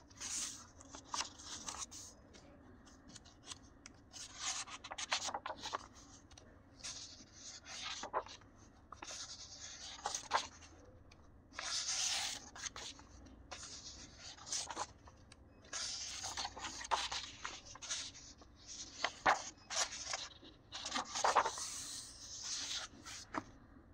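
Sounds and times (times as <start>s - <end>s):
sketchbook pages turning: 0.1s - 23.6s
light paper ticks: 0.3s - 7.1s, 7.8s - 11.2s.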